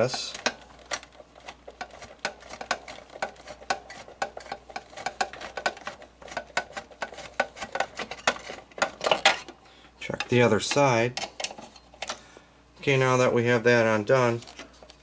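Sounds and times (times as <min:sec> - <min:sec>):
screwdriver clicking and scraping: 0:00.0 - 0:09.2.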